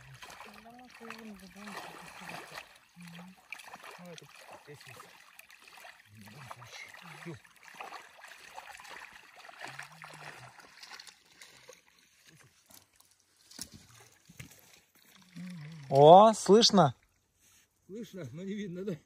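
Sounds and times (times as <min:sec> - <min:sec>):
water sloshing and trickling: 0:00.0 - 0:17.9
quiet voices: 0:15.2 - 0:16.2.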